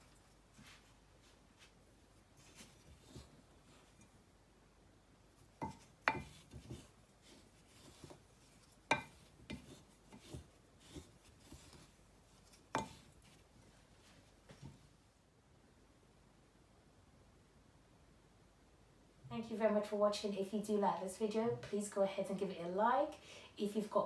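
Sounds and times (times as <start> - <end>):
spoon scraping spice in jug: 5.6 - 13.4.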